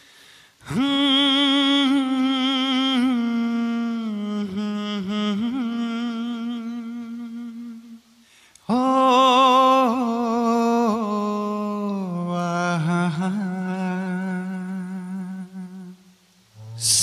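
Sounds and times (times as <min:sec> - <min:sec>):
man singing unaccompanied: 0:00.6 - 0:17.0.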